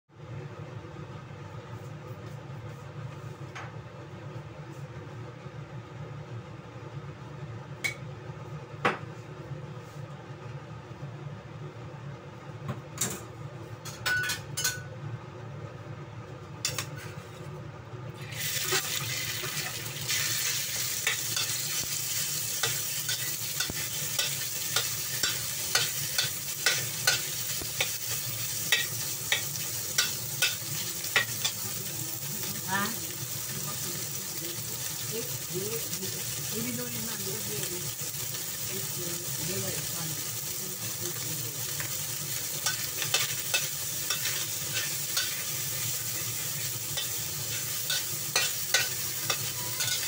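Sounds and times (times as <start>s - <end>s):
meat sizzling in hot oil: 18.2s - 50.0s
metal spatula scraping a wok: 42.6s - 50.0s.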